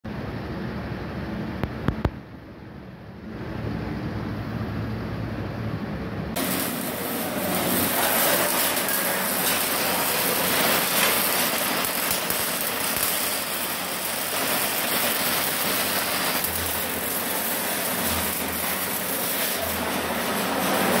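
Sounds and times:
welding arc crackling and hissing: 6.3s - 21.0s.

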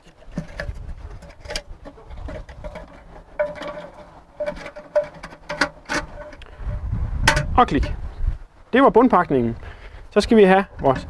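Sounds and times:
plastic parts clicking and tapping: 0.0s - 6.5s
plastic squeaking: 0.0s - 6.5s.

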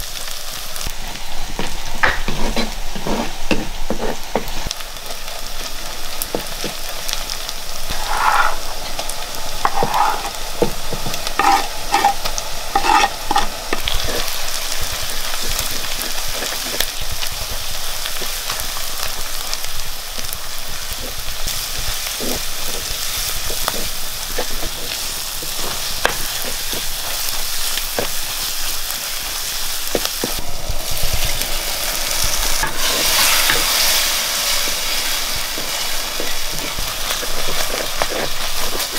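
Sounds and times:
food sizzling in hot oil: 0.0s - 38.9s
spatula clicking and scraping: 7.9s - 8.8s, 9.6s - 16.9s, 21.8s - 28.2s, 35.1s - 38.9s.

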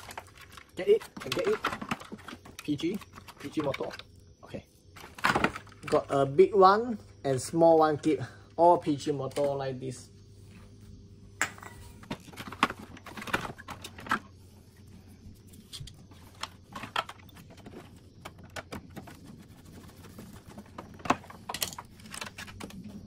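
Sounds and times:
hands handling plastic parts: 0.0s - 4.1s, 12.0s - 14.4s, 15.4s - 23.0s.

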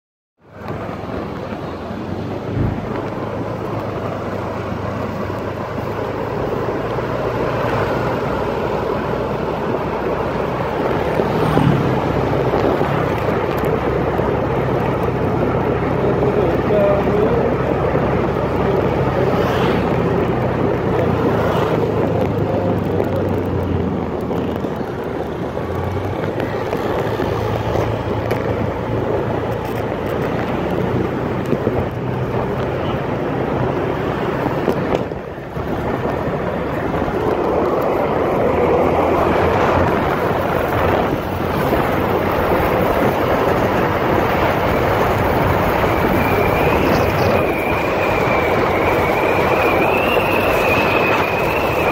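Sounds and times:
wind buffeting microphone: 0.5s - 51.9s.

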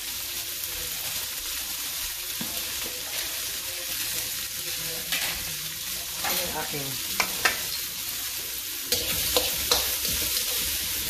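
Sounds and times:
onion sizzling in oil: 0.0s - 11.0s.

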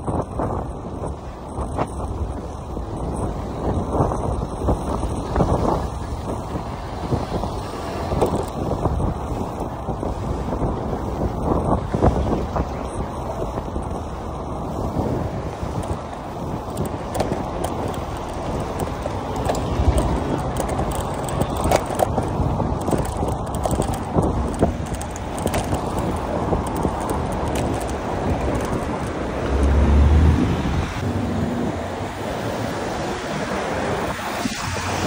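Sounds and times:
bicycle clicks and rattles: 0.0s - 29.8s
wind noise on microphone: 0.0s - 35.0s
cars passing: 0.8s - 35.0s
low rumble: 29.3s - 32.0s.

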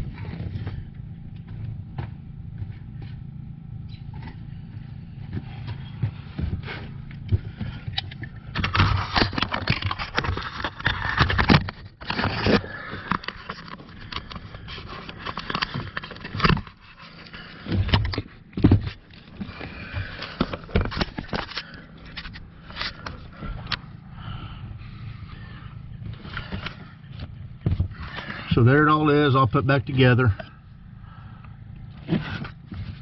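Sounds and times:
hand tools scraping and clicking: 6.6s - 23.8s.

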